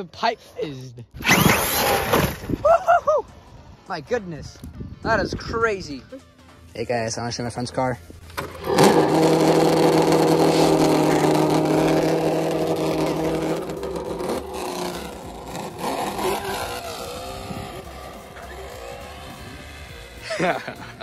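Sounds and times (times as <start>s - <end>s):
simulated engine sound from speaker: 8.6s - 20.6s.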